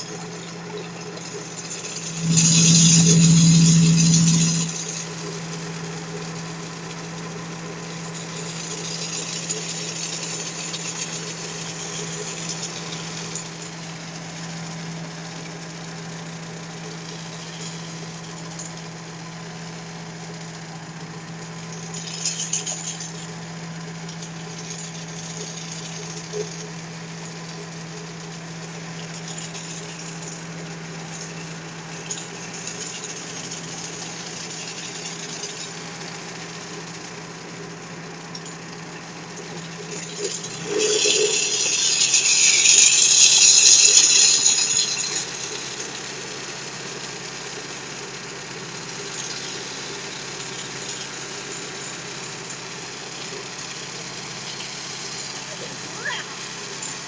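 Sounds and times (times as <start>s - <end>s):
loader engine humming: 0.0s - 57.0s
hedge trimmer cutting hiss: 39.8s - 57.0s.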